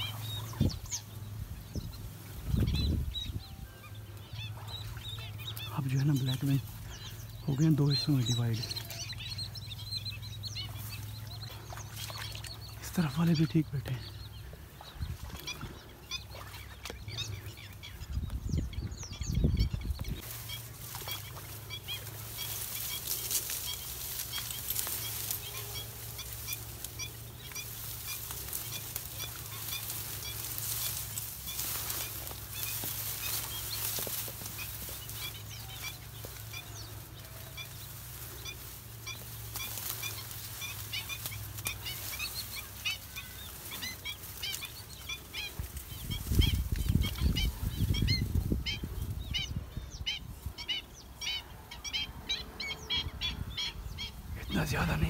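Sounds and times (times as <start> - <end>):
low rumble on microphone: 0.0 - 5.7, 13.9 - 42.7, 44.8 - 50.5
flock of birds yelping: 0.0 - 55.0.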